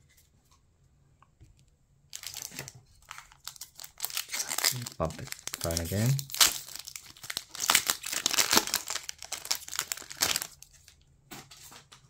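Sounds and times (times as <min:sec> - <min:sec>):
foil wrapper crinkling and tearing: 0:02.1 - 0:11.0.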